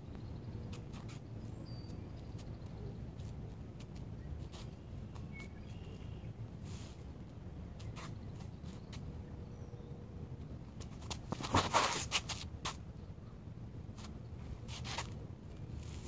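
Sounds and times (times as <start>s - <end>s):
footsteps scuffing on ground: 10.8s - 12.8s.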